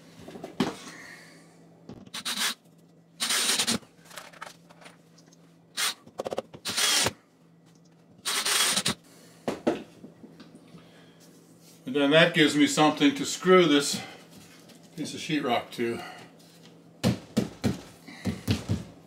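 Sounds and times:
power drill driving screws: 2.1s - 2.6s, 3.2s - 3.8s, 6.6s - 7.2s, 8.2s - 9.0s.

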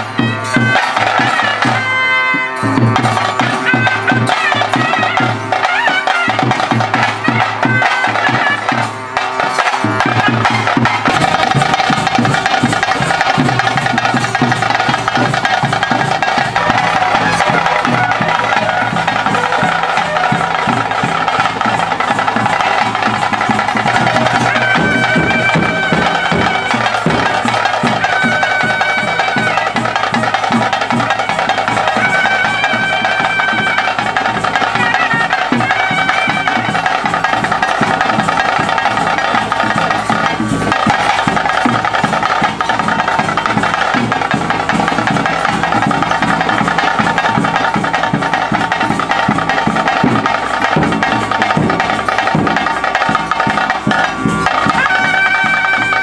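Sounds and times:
continuous drumming: 0.0s - 56.0s.

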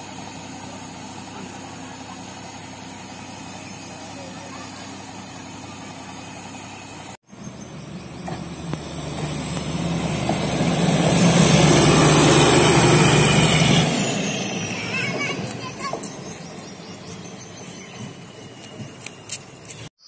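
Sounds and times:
railway car engine drone: 0.0s - 19.9s
steady engine sound: 0.0s - 19.9s.

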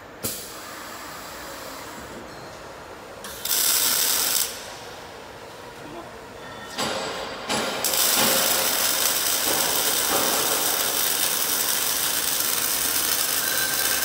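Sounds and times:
welding machine running: 3.3s - 4.7s, 7.8s - 14.0s.

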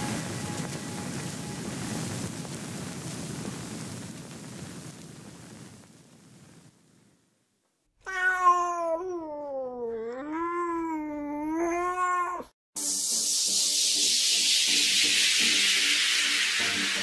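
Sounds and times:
cat meowing: 8.0s - 12.5s.

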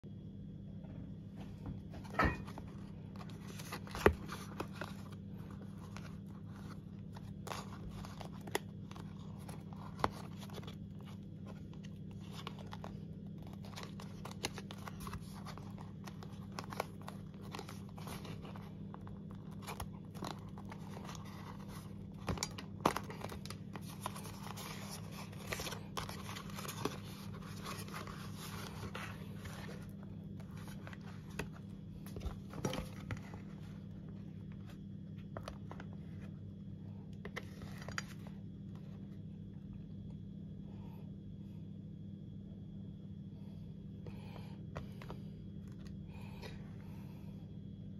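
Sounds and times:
steady low hum: 0.0s - 47.9s
paperboard box crinkling and crackling: 2.0s - 36.5s, 37.1s - 39.1s.

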